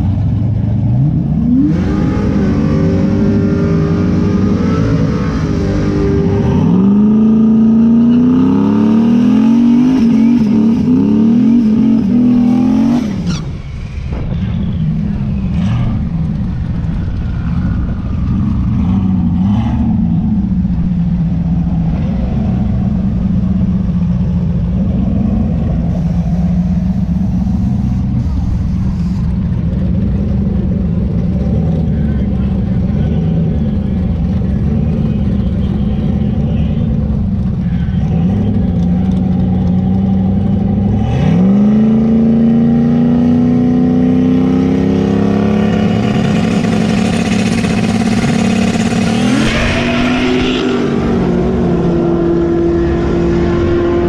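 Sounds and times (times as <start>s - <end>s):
truck engine revving: 0.0s - 54.0s.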